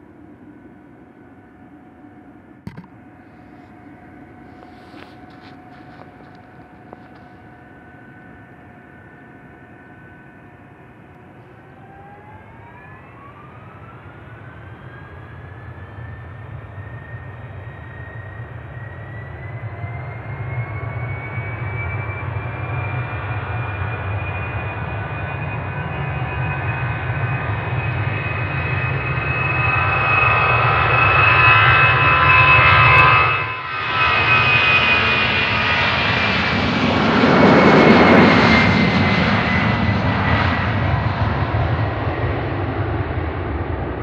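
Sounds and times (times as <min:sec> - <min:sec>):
jet engines whining: 0:00.0 - 0:44.0
deep jet rumble: 0:33.8 - 0:44.0.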